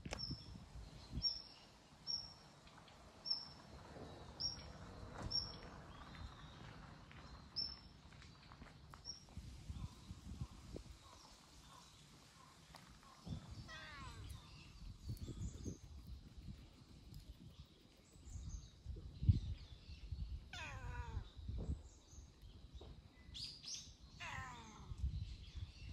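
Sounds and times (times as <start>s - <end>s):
cat meowing: 13.7s - 14.4s, 20.5s - 21.3s, 24.2s - 25.0s.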